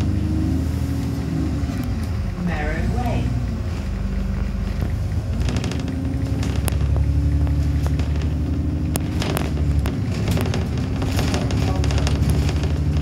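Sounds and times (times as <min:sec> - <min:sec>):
bus diesel engine running: 0:00.0 - 0:13.0
bodywork rattles and clicks: 0:03.7 - 0:13.0.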